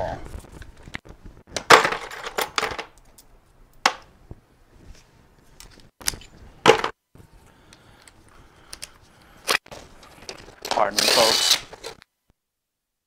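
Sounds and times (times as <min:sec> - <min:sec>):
tools and parts clacking: 0:01.6 - 0:04.0, 0:08.0 - 0:12.0.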